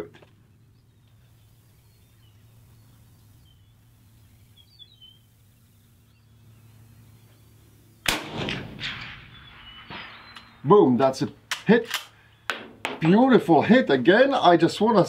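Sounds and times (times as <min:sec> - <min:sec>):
faint bird chirps: 0:00.0 - 0:08.1, 0:09.0 - 0:10.9, 0:12.2 - 0:12.5
suppressed rifle shot: 0:08.0 - 0:10.6.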